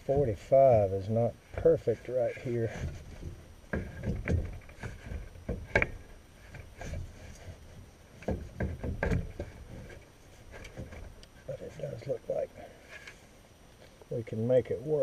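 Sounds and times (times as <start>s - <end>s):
rubbing and handling noise: 0.0s - 14.1s
plastic knocks and clicks: 2.8s - 7.1s, 8.2s - 9.8s.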